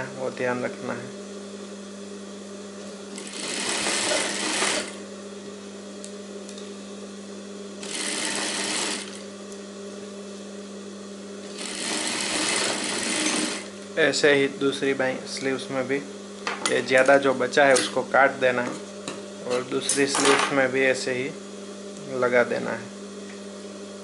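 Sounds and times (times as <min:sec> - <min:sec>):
sewing machine motor humming: 0:03.0 - 0:05.1, 0:07.8 - 0:09.3, 0:11.4 - 0:13.9
sewing machine stitching: 0:03.1 - 0:05.0, 0:07.8 - 0:09.2, 0:11.5 - 0:13.7.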